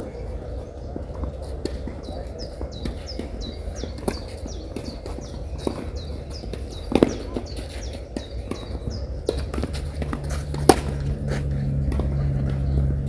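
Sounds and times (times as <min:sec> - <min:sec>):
birds chirping: 0:00.0 - 0:13.0
tennis ball hit by racket: 0:02.8 - 0:13.0.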